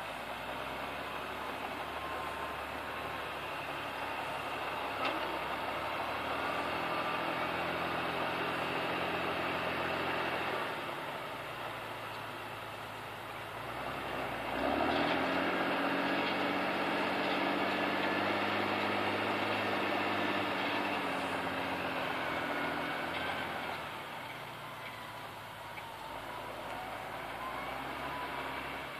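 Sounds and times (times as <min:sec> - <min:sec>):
tractor engine under load: 0:00.0 - 0:28.9.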